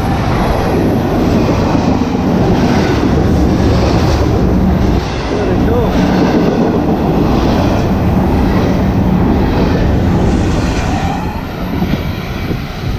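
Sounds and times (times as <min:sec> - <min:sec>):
train wheels rumbling on rail: 0:00.0 - 0:12.9.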